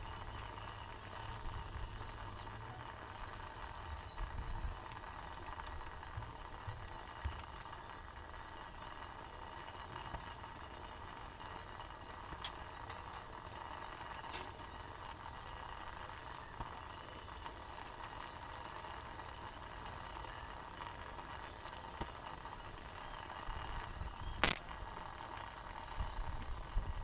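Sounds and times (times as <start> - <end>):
water boiling in a pot: 0.0 - 27.0
sharp click: 24.4 - 24.7.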